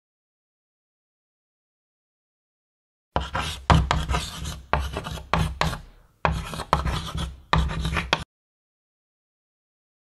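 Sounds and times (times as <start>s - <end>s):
chalk scratching on chalkboard: 3.2s - 8.3s.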